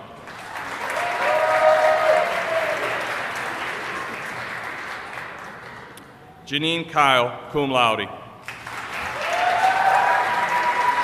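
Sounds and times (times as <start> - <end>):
audience applauding: 0.2 - 6.0, 8.5 - 11.0.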